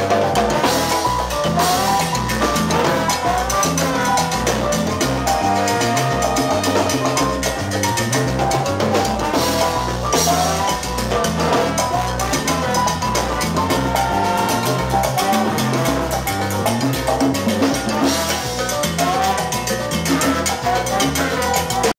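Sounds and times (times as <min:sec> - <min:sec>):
brass and saxophone: 0:00.0 - 0:21.9
congas and timbales: 0:00.0 - 0:21.9
keyboard: 0:00.0 - 0:21.9
walking bass: 0:00.0 - 0:21.9.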